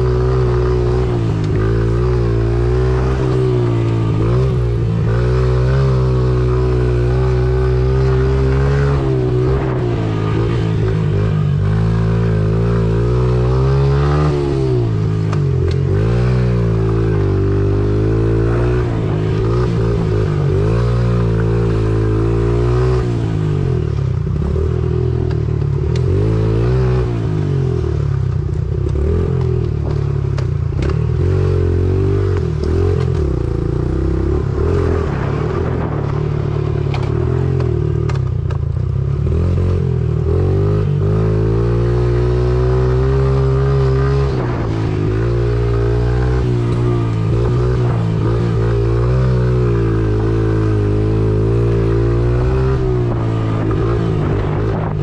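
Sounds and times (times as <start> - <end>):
dirt bike engine revving: 0.0 - 24.7, 39.2 - 55.0.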